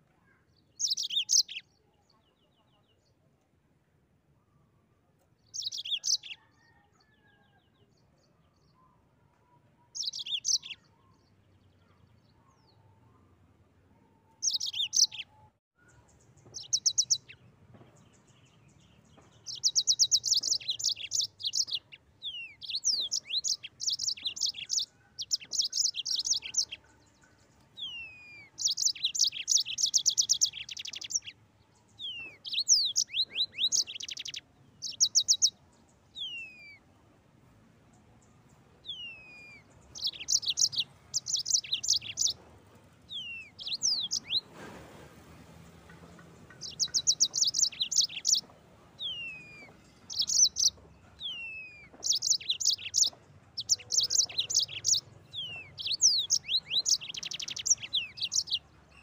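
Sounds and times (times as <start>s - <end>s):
canary singing trills: 0.6s - 2.6s, 5.4s - 7.5s, 9.9s - 11.4s, 14.2s - 17.5s, 19.4s - 31.4s, 32.0s - 36.8s, 38.8s - 42.4s, 43.1s - 44.5s, 46.4s - 59.0s.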